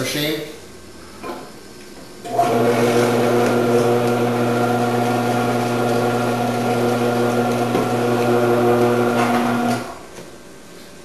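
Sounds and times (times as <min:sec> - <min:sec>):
vegetable cutter motor humming: 0:02.3 - 0:09.9.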